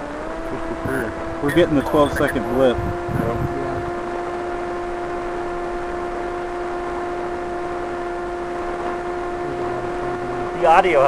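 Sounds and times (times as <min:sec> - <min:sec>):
radio crackle: 0:00.5 - 0:06.2
radio hiss and hum: 0:00.5 - 0:11.0.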